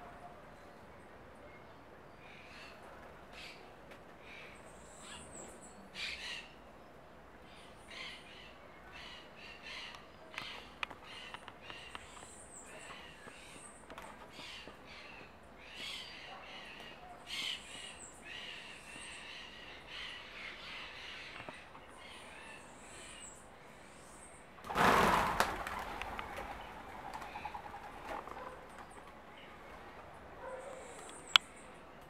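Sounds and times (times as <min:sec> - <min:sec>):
birds chirping: 0:00.5 - 0:24.6, 0:25.5 - 0:32.0
clatter of flock wings: 0:24.6 - 0:29.2.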